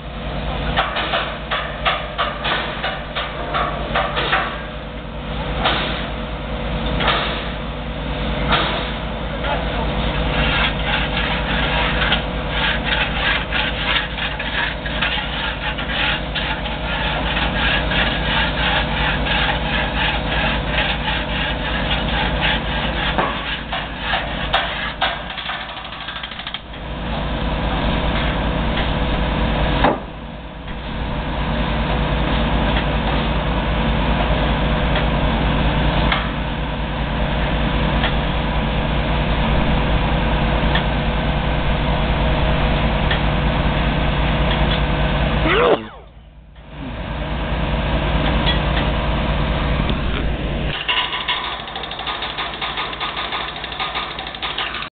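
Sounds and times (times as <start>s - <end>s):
construction machinery engine running: 0.0s - 54.9s
fast rattling clatter: 10.4s - 26.7s, 50.7s - 54.9s.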